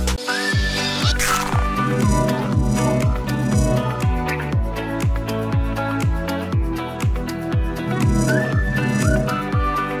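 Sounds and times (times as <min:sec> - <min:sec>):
electronic music: 0:00.0 - 0:05.9, 0:06.8 - 0:10.0
gliding synth melody: 0:01.8 - 0:04.1, 0:07.8 - 0:09.6.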